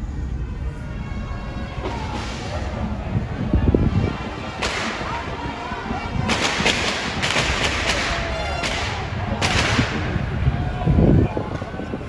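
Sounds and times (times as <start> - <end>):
crowd noise in street: 0.0 - 12.0
sharp bangs: 3.8 - 10.5.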